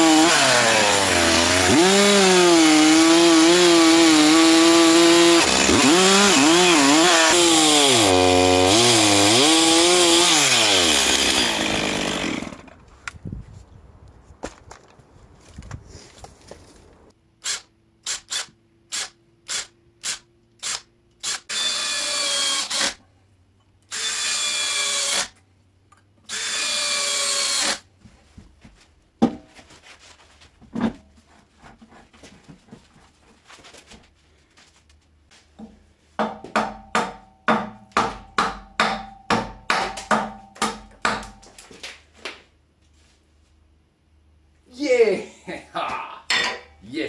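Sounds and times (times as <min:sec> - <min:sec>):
cordless drill driving screws: 0:17.4 - 0:23.0, 0:23.9 - 0:25.4, 0:26.3 - 0:27.8.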